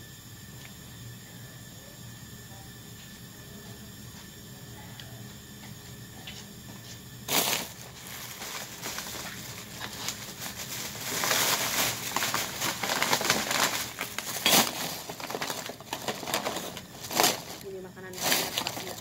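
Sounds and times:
plastic bags rustling: 7.3s - 19.0s.

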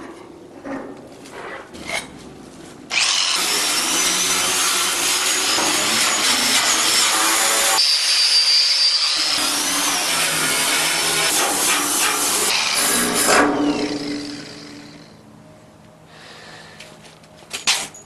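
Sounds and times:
power tool grinding steel: 2.9s - 15.1s
power tool high whine: 2.9s - 15.2s.

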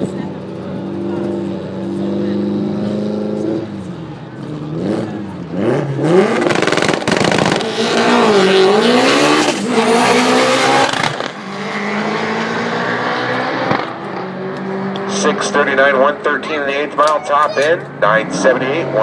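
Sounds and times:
race car accelerating hard: 0.0s - 17.0s.

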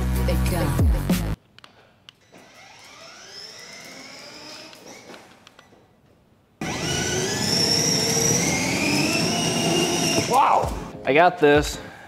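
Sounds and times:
electric motor whining: 2.4s - 5.1s, 6.6s - 10.9s.

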